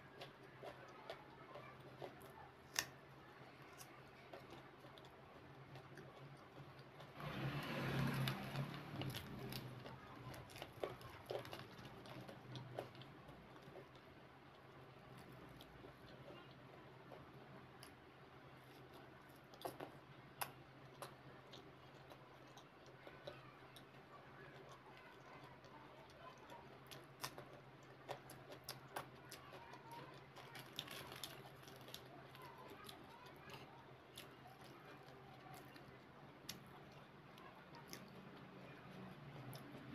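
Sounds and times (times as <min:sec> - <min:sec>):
chewing with mouth closed: 0:03.7 - 0:18.0, 0:18.6 - 0:39.9.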